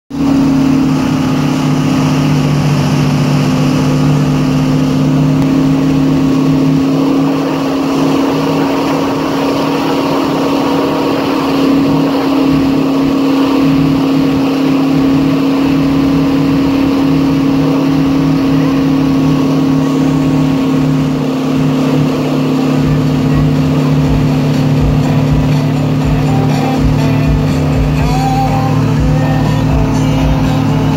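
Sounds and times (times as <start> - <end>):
boat engine droning: 0.1 - 30.9
churning wake water: 0.1 - 30.9.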